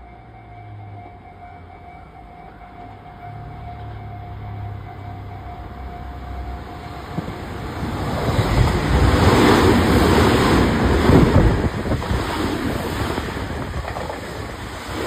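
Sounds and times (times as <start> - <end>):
train wheels clattering on rails: 6.6 - 15.0.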